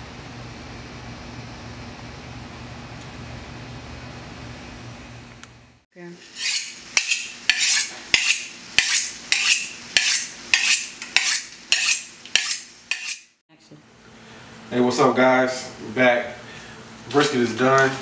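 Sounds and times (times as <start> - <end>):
knife scraping on honing steel: 6.2 - 13.4.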